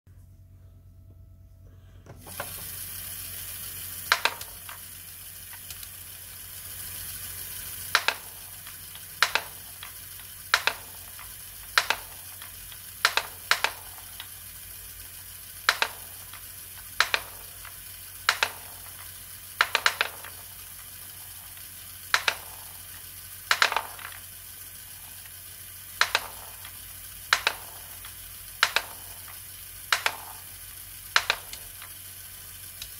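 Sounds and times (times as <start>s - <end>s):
small motor and gears whirring: 2.0s - 32.9s
ball clacking into wooden tray: 4.1s - 4.5s, 9.2s - 9.9s, 10.5s - 10.9s, 11.8s - 12.2s, 13.0s - 13.9s, 18.3s - 19.0s, 22.2s - 22.6s, 23.5s - 24.2s, 26.0s - 27.8s, 28.6s - 30.4s, 31.2s - 31.9s.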